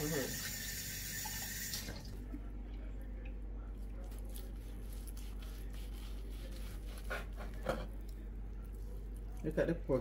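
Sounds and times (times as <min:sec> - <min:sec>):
steady low hum: 0:01.9 - 0:10.0.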